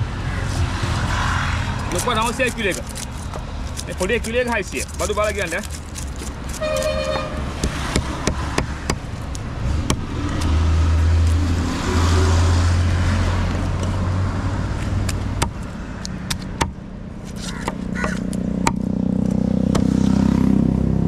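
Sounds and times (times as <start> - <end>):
vehicle passing by: 0.0 - 2.4, 9.5 - 16.0, 18.3 - 21.0
knife scraping fish scales: 1.8 - 7.3.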